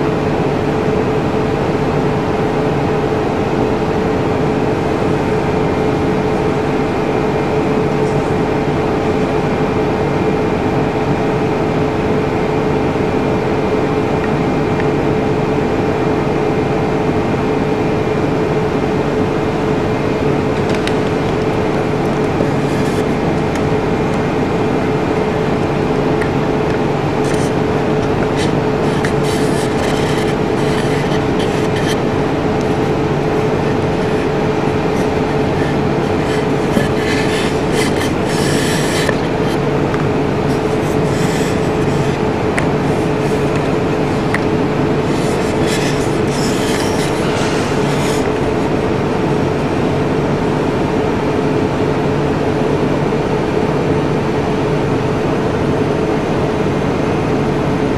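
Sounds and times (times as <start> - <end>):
constant hum: 0.0 - 57.9
mechanical rushing noise: 19.7 - 50.2.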